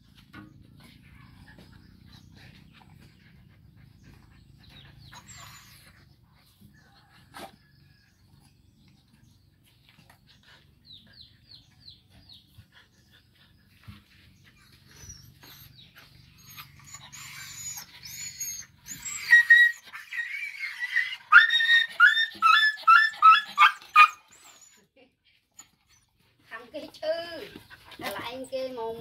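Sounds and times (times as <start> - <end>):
dog yelping and whining: 0.8 - 6.4, 14.5 - 26.3.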